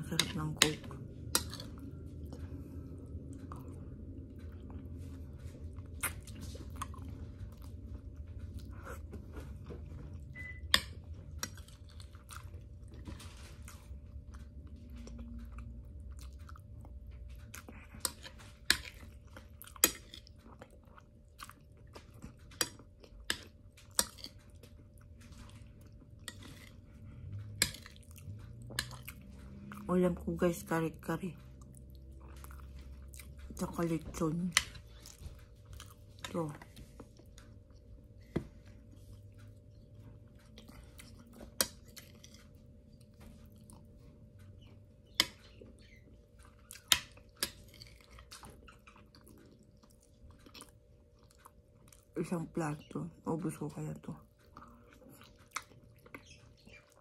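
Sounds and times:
chewing and crunching food: 0:00.0 - 0:57.0.

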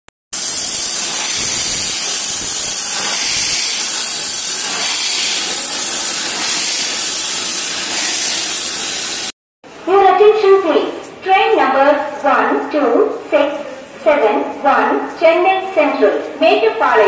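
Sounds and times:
high-pitched hiss: 0:00.4 - 0:09.3.

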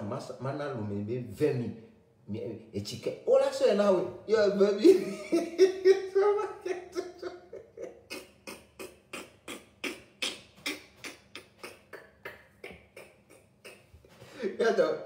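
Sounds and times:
people laughing: 0:04.8 - 0:08.2.

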